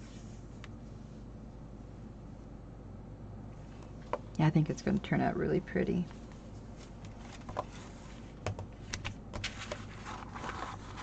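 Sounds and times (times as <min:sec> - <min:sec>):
plastic packaging rustle: 0:09.4 - 0:11.0.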